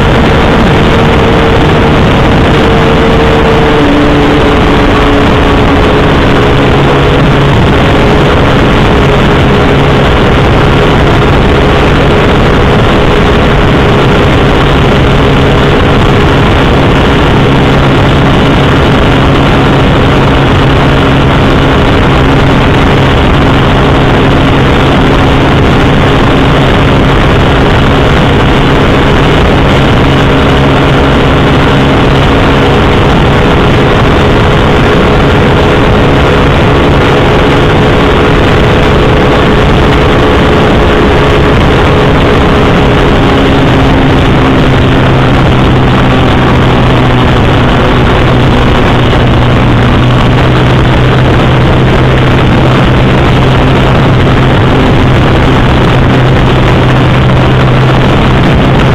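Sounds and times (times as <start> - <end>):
heavy wind: 0.0 - 58.9
motorcycle engine droning: 0.0 - 58.9
road rush: 0.0 - 58.9.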